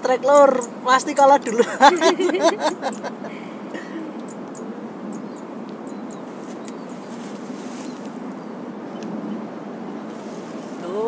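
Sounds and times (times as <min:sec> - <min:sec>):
outdoor background hiss: 0:00.0 - 0:11.0
small birds chirping: 0:00.0 - 0:11.0
faint ticks: 0:02.9 - 0:03.1.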